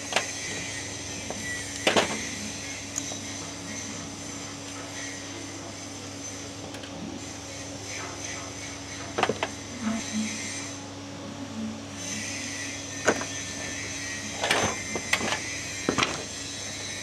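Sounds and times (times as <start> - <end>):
low workshop hum: 0.0 - 17.0.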